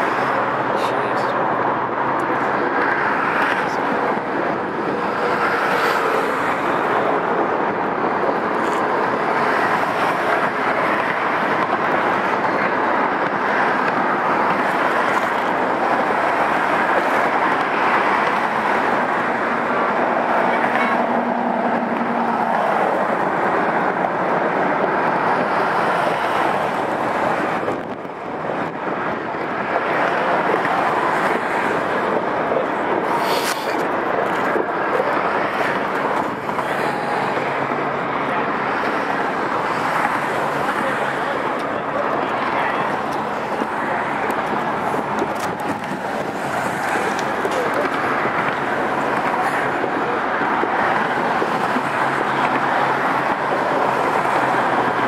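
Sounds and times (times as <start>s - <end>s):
highway traffic rushing: 0.0s - 55.0s
wind on microphone: 41.4s - 55.0s.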